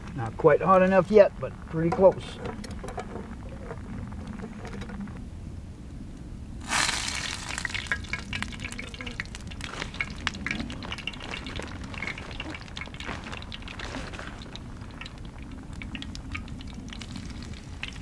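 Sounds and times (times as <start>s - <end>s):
fish sizzling in a frying pan: 6.6s - 18.0s
fat spitting and popping: 6.7s - 18.0s.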